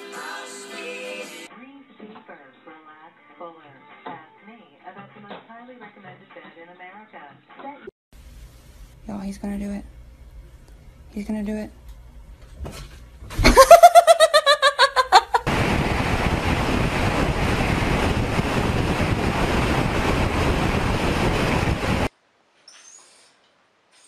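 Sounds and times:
wind rush on microphone: 0:15.4 - 0:22.1.

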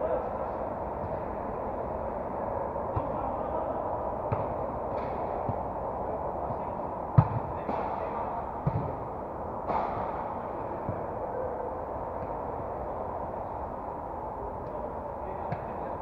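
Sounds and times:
football kicks: 0:08.6 - 0:09.0.

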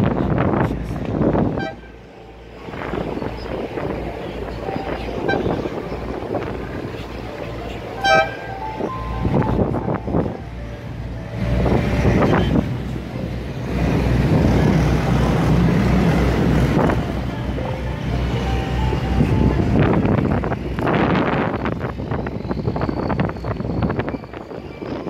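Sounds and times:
boat engine rumbling: 0:00.0 - 0:25.0
horn toot: 0:01.5 - 0:02.0, 0:08.0 - 0:08.7.

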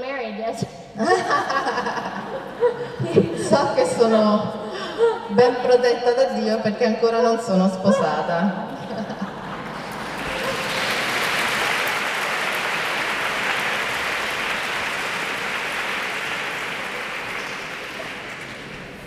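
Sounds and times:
audience applauding: 0:09.2 - 0:19.0.

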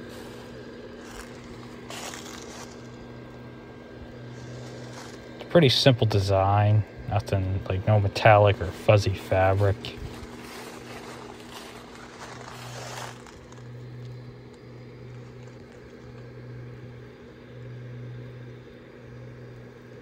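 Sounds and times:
blower fan humming: 0:00.0 - 0:20.0.

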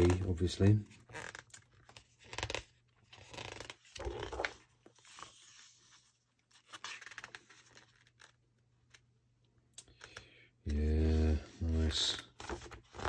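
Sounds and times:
book pages turning: 0:00.0 - 0:09.2, 0:11.4 - 0:13.0.

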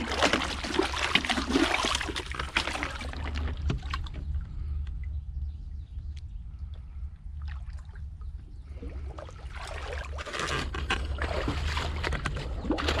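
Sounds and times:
muddy water splashing: 0:00.0 - 0:04.6, 0:08.7 - 0:13.0
low rumble: 0:02.0 - 0:10.2.

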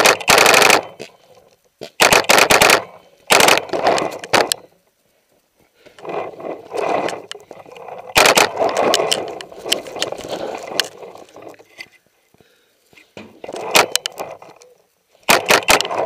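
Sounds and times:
sharp clicks: 0:00.0 - 0:04.7, 0:06.7 - 0:11.0, 0:13.5 - 0:16.0.

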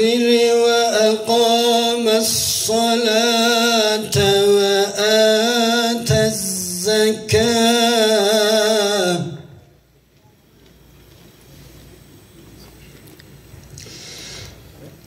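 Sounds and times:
man reciting melodically: 0:00.0 - 0:09.7
faint low background noise: 0:00.0 - 0:15.0
breathy hiss: 0:13.6 - 0:15.0.

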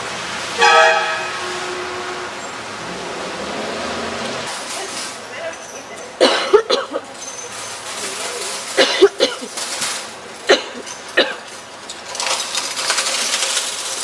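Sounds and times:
fast rattling clatter: 0:07.4 - 0:14.0.

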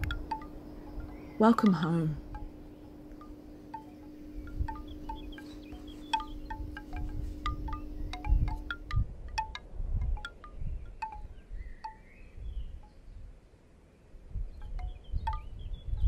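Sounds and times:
wind chimes tinkling: 0:00.0 - 0:12.2, 0:14.5 - 0:16.0
low steady hum: 0:00.0 - 0:16.0
wind gusts on microphone: 0:04.3 - 0:13.4, 0:14.2 - 0:16.0.

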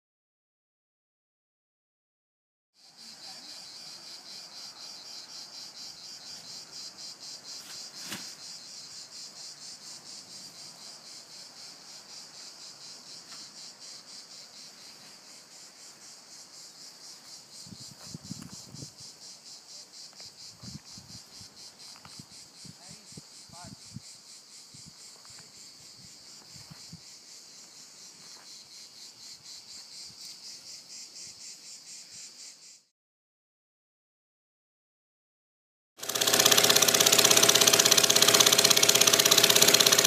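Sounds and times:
crickets chirping: 0:02.8 - 0:32.9.

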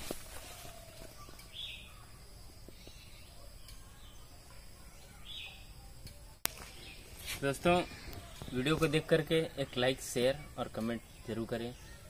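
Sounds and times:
faint outdoor ambience: 0:00.0 - 0:12.0.

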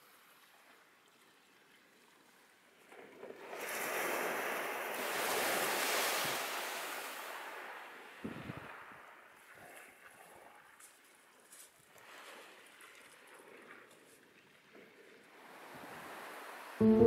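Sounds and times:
wave washing over pebbles: 0:03.0 - 0:09.7.

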